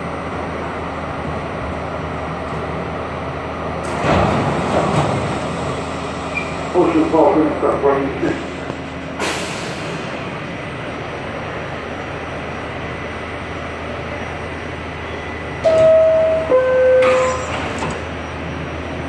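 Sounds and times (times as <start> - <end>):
subway car hum: 0.0 - 19.0
two-tone door chime: 15.6 - 17.8.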